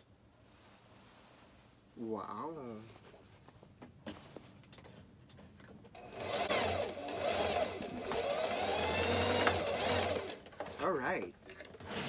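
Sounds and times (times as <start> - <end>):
sewing machine stitching fabric: 5.9 - 12.0.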